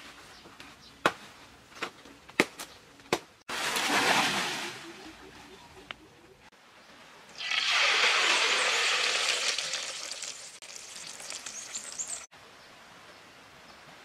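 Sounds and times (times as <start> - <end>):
hot oil sizzling in a wok: 7.4 - 12.3.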